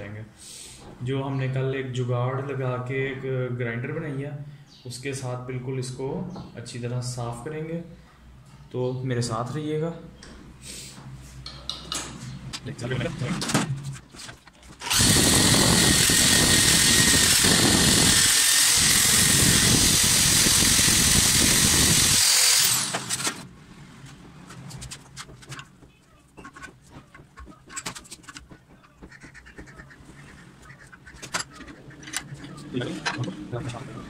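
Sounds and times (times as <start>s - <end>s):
electric grinder whining: 14.8s - 23.4s.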